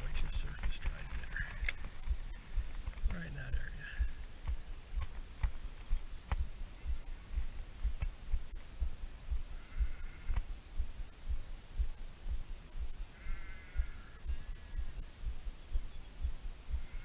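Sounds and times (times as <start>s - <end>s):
low thumping and rumbling: 0.0s - 17.0s
short pitched calls: 13.1s - 17.0s.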